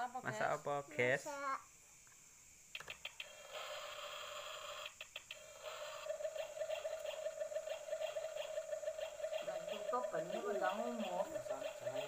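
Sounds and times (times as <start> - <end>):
warbling electronic tone: 3.3 - 12.0.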